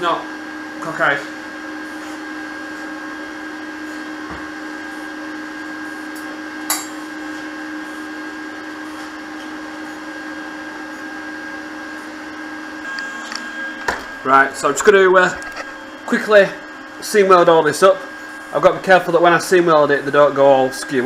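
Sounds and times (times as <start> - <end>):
whirring machine hum: 0.0 - 21.0.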